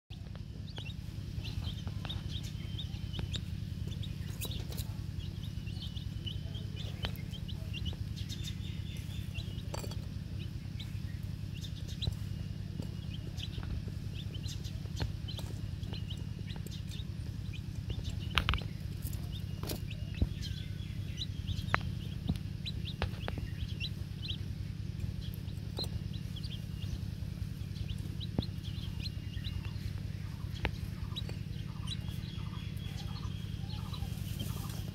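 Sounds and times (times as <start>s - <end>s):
chicks peeping: 0.1s - 34.9s
steady low hum: 0.1s - 34.9s.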